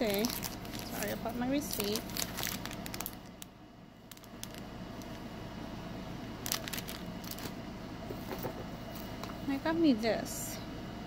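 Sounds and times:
cellophane crinkling: 0:00.0 - 0:05.2, 0:06.4 - 0:07.6
faint steady hum: 0:00.0 - 0:11.0.

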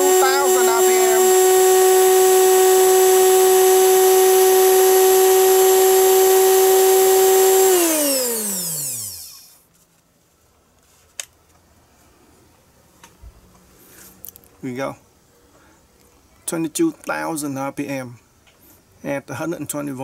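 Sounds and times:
electric motor whining: 0:00.0 - 0:09.5.

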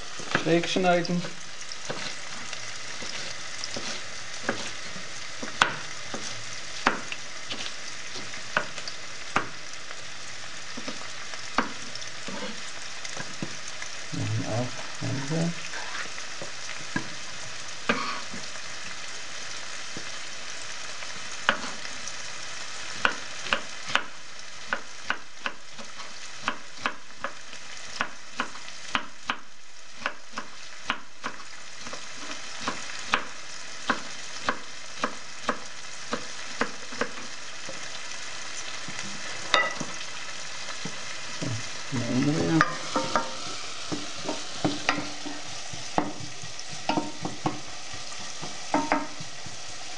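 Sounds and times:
onions sizzling in oil: 0:00.0 - 0:49.9
wooden spoon scraping a pot: 0:01.2 - 0:08.9, 0:10.8 - 0:13.7, 0:15.6 - 0:17.2, 0:42.4 - 0:49.6.

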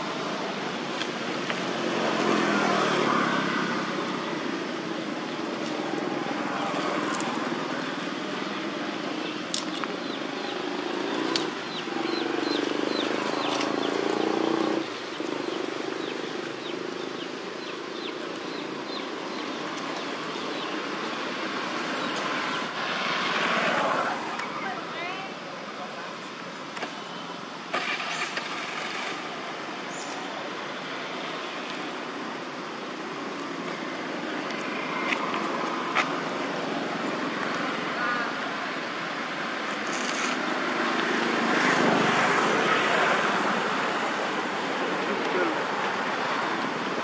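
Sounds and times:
passing road vehicles: 0:00.0 - 0:47.0.

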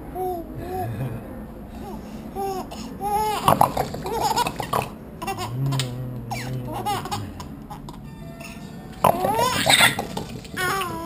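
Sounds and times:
infant laughing and squealing: 0:01.8 - 0:08.0, 0:09.0 - 0:11.0.

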